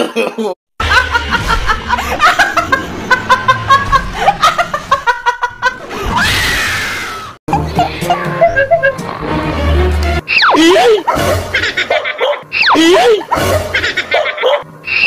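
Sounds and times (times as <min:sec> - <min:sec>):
woman laughing: 0:07.5 - 0:09.2, 0:10.5 - 0:11.2, 0:12.8 - 0:13.3.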